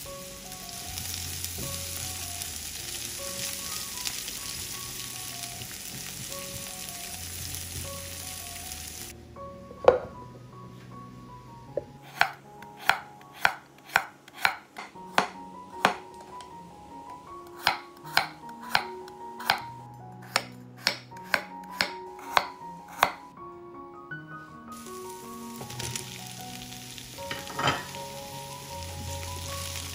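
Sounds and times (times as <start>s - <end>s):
knife chopping on wooden board: 12.1s - 16.0s, 17.6s - 23.2s.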